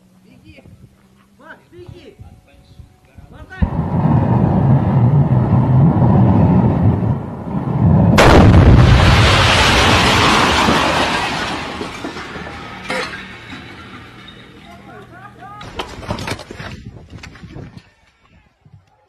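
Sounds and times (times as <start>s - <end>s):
pyrotechnic charge roaring: 3.5s - 12.9s
loud blast: 3.6s - 12.4s.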